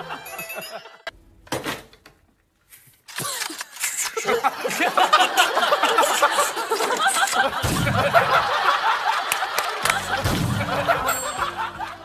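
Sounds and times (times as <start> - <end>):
people laughing and chattering: 4.2 - 12.0.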